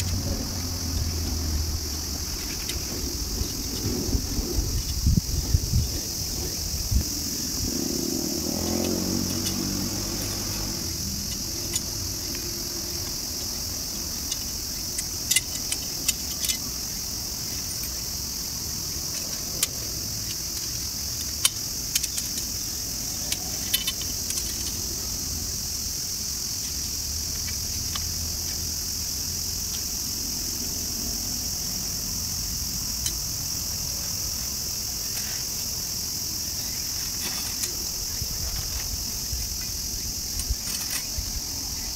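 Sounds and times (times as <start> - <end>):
high insect chorus: 0.0 - 41.9
light metal clinks: 8.8 - 18.1, 19.1 - 24.8.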